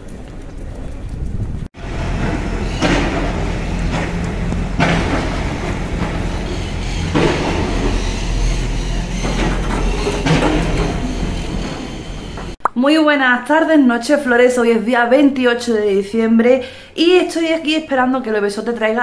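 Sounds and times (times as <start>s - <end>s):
motor humming: 1.8s - 12.6s.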